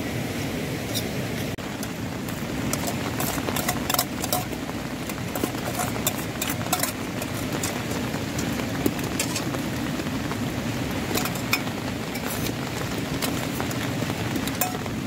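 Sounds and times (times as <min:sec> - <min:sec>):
rushing background noise: 0:00.0 - 0:15.0
spoon scraping steel bowl: 0:02.7 - 0:04.6, 0:05.2 - 0:07.9, 0:11.1 - 0:12.6.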